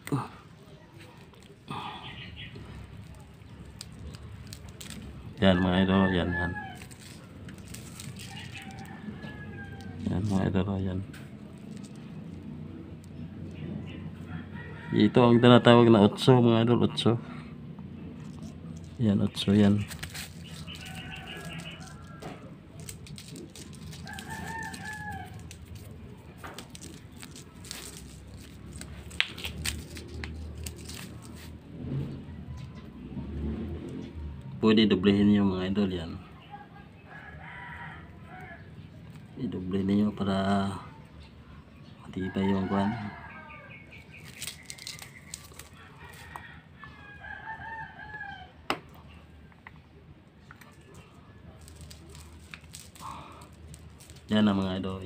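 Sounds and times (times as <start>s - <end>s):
rooster crowing: 5.4s - 7.0s, 8.0s - 10.4s, 14.1s - 15.9s, 20.6s - 23.0s, 23.9s - 25.9s, 37.1s - 38.8s, 42.1s - 43.9s, 44.8s - 48.7s
fishing line rustling and clicking: 6.7s - 9.0s, 19.6s - 31.6s, 44.2s - 46.4s, 51.6s - 54.3s.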